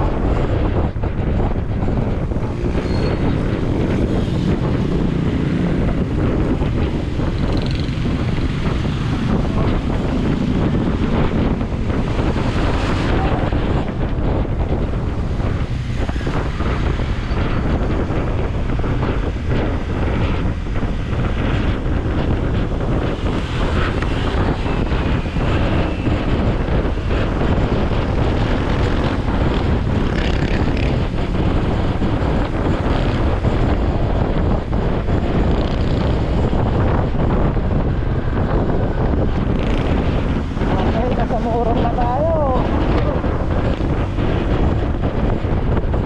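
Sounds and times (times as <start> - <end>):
road noise: 0.0 - 46.0
wind rushing over microphone: 0.0 - 46.0.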